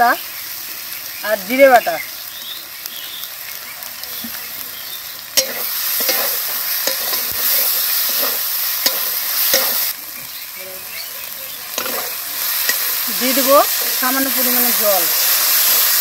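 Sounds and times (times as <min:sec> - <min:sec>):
onions sizzling in hot oil: 0:00.0 - 0:16.0
metal spatula scraping a pan: 0:05.4 - 0:09.9, 0:11.7 - 0:16.0.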